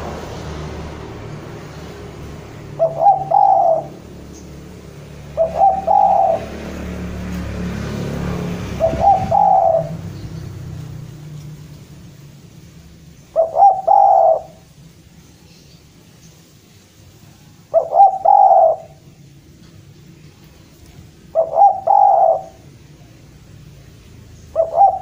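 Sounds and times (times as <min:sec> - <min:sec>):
dove cooing: 0:02.6 - 0:10.2, 0:13.3 - 0:14.8, 0:17.6 - 0:19.0, 0:21.0 - 0:23.0, 0:24.3 - 0:25.0.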